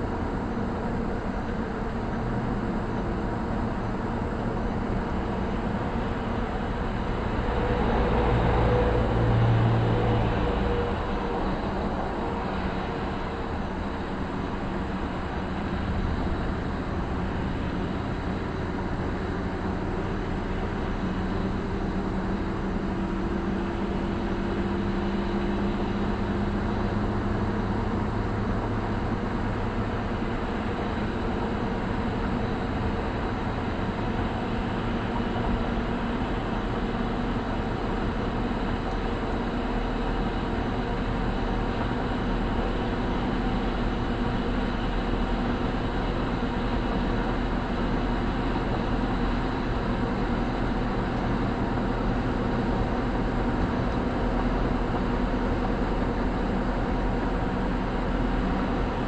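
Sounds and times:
faint engine hum: 0.0s - 59.0s
tyre and wind road noise: 0.0s - 59.0s.

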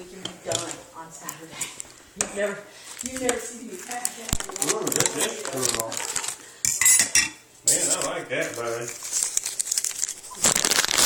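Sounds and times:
rustling: 1.3s - 6.5s, 7.8s - 11.0s.

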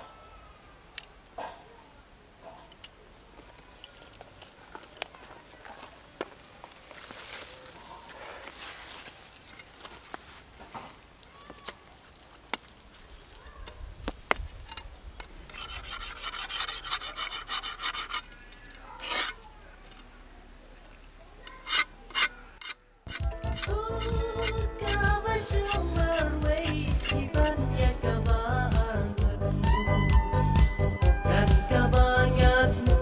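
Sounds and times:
blade scraping wooden stick: 15.2s - 19.5s, 21.5s - 27.8s.

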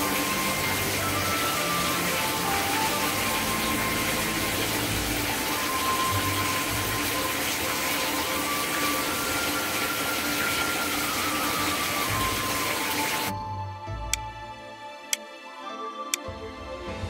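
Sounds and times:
water running into a bathtub: 0.0s - 13.3s.

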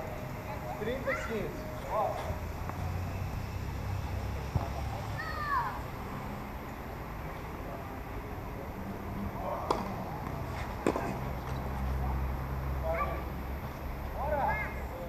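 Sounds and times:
tennis ball struck: 9.5s - 11.8s.

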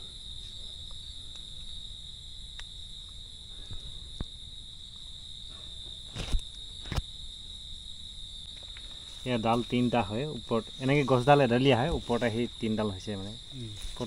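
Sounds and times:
crickets trilling: 0.0s - 14.0s
rustle: 4.9s - 7.1s, 8.4s - 14.0s.

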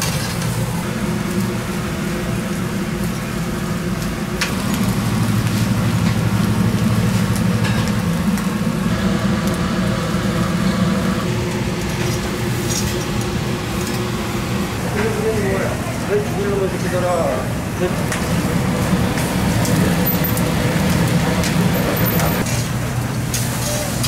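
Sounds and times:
fish sizzling on a grill: 0.0s - 24.0s
low mechanical hum: 0.0s - 24.0s.

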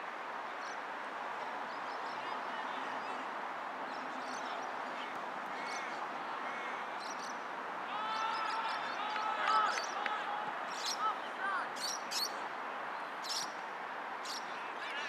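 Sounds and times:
distant shouts from players: 7.8s - 12.0s.

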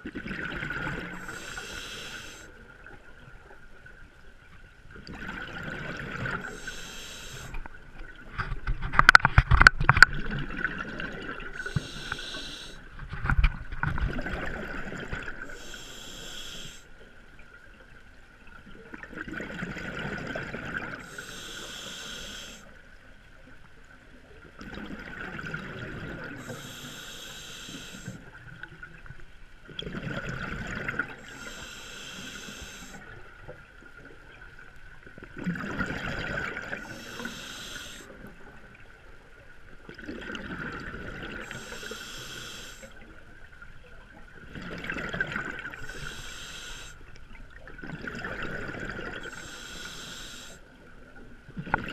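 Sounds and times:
exhaled bubbles burbling: 0.0s - 2.0s, 5.0s - 6.6s, 8.1s - 15.6s, 18.8s - 21.0s, 24.6s - 26.6s, 29.7s - 31.6s, 35.2s - 37.4s, 39.9s - 41.8s, 44.4s - 46.2s, 47.3s - 49.4s, 51.5s - 51.9s
faint steady whine: 0.7s - 5.0s, 11.4s - 14.0s, 14.8s - 18.6s, 20.7s - 24.4s, 25.3s - 29.7s, 30.6s - 35.2s, 36.4s - 39.8s, 40.6s - 44.4s, 45.3s - 51.5s
regulator inhale hiss: 1.0s - 2.6s, 6.4s - 7.7s, 11.5s - 12.9s, 15.4s - 17.0s, 21.0s - 22.8s, 26.3s - 28.3s, 31.2s - 33.2s, 36.7s - 38.2s, 41.4s - 43.0s, 45.7s - 47.1s, 49.2s - 50.8s.

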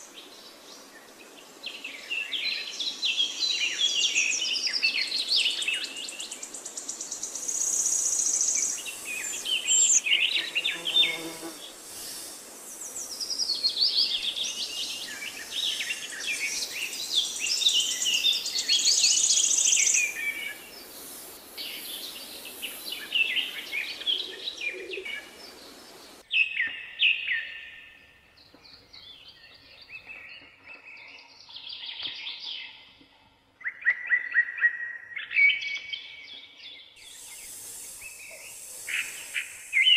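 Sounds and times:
songbirds singing and chirping: 0.0s - 39.9s.

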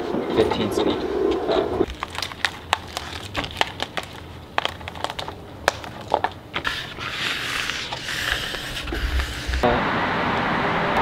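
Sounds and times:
vinyl peeling crackles: 1.8s - 9.6s.

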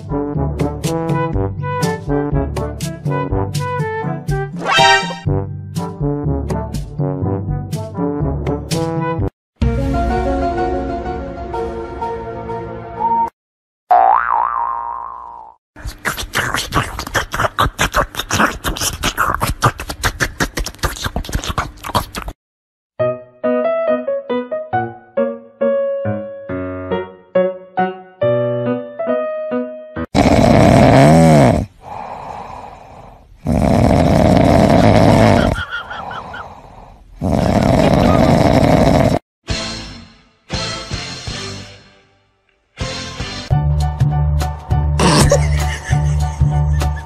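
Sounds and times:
falling boing sound effect: 13.9s - 15.6s
loud rasping snoring: 30.1s - 35.6s, 36.2s - 39.2s
quiet breathing: 31.7s - 33.4s.

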